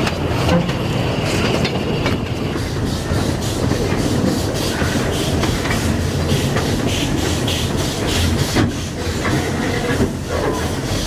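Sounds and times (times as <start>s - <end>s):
carriage wheels rumbling on rails: 0.0s - 11.0s
steam train puffing: 2.5s - 11.0s.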